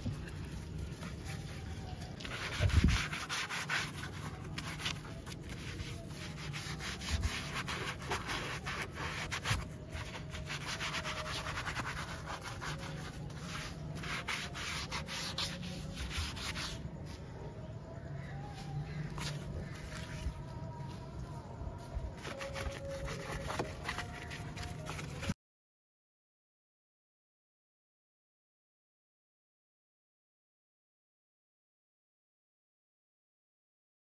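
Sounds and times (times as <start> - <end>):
foam pad rubbing wet plastic: 0.4 - 17.0, 18.8 - 20.6, 22.2 - 25.3.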